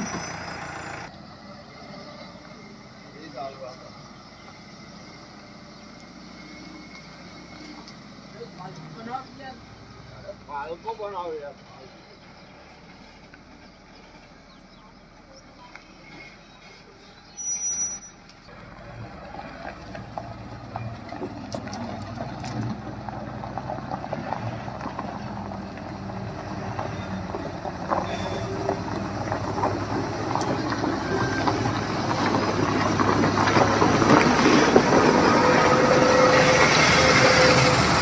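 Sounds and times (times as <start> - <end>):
diesel truck engine running: 0.0 - 17.3, 18.2 - 38.0
tyres crackling on gravel: 10.5 - 38.0.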